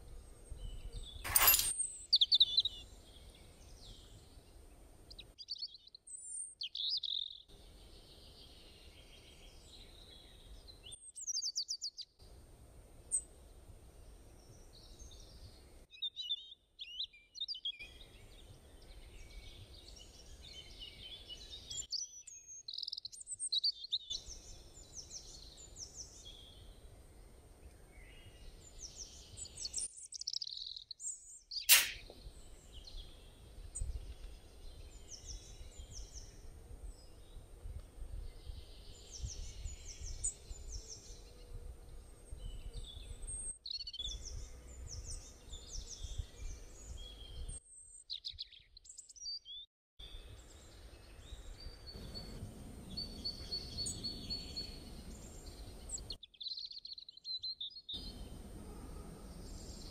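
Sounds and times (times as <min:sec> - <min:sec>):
small birds chirping: 0:00.0 - 0:12.2, 0:14.0 - 0:58.6
sharp clink: 0:01.3 - 0:01.9, 0:31.7 - 0:32.0.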